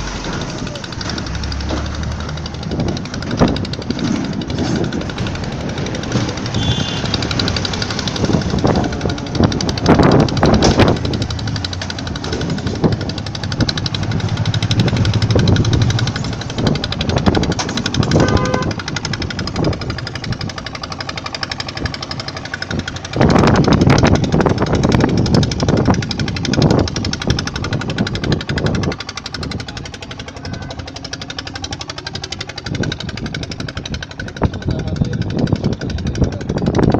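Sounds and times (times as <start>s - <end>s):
road traffic noise: 0.0s - 36.9s
wind on microphone: 22.7s - 29.8s.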